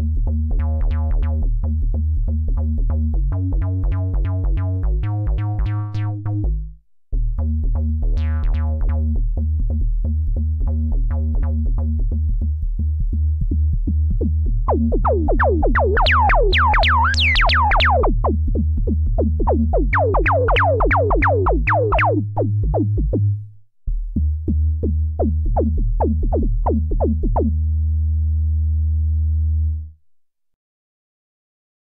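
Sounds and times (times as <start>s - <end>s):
synthesizer bass line: 2.7s - 6.7s, 13.3s - 28.6s
drum machine beat: 14.7s - 27.5s.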